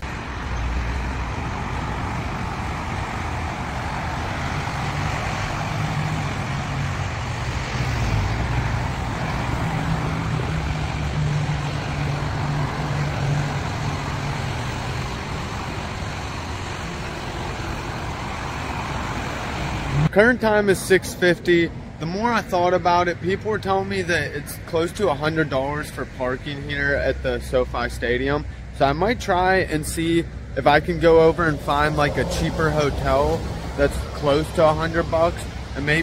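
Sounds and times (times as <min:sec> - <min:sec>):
road noise rushing: 0:00.0 - 0:36.0
low engine hum: 0:29.4 - 0:36.0.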